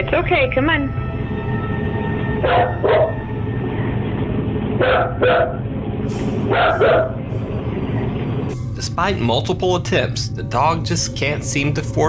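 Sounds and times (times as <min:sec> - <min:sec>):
steady low hum: 0:00.0 - 0:12.0
dog barking: 0:02.5 - 0:03.2, 0:04.8 - 0:05.6, 0:06.5 - 0:07.2.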